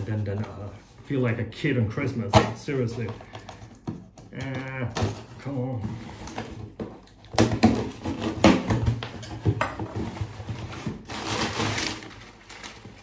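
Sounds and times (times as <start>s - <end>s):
box packaging scraping and knocking: 2.1s - 13.0s.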